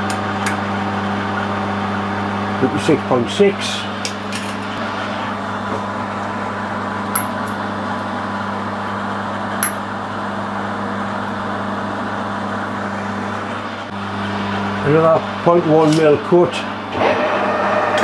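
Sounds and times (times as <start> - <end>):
machine hum: 0.0 - 18.0.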